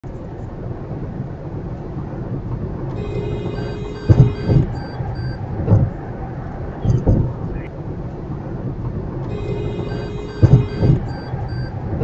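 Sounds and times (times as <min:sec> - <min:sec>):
road and engine rumble: 0:00.0 - 0:12.0
short electronic beeps: 0:03.0 - 0:05.9, 0:09.3 - 0:11.8
heavy thumps: 0:03.2 - 0:06.0, 0:06.8 - 0:07.7, 0:09.7 - 0:12.0.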